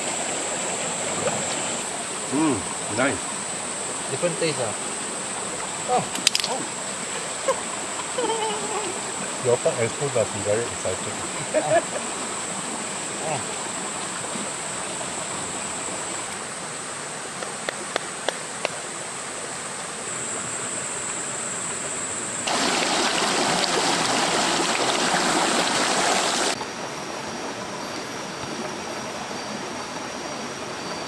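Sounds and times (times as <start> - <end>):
stream flowing over rocks: 0.0 - 31.0
sharp clicks: 6.1 - 6.6.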